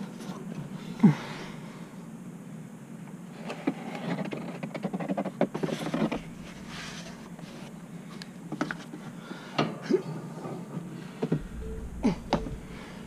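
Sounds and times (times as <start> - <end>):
steady low hum: 0.0 - 3.3, 5.7 - 9.4, 11.0 - 13.0
hands rustling and scraping: 5.0 - 9.0.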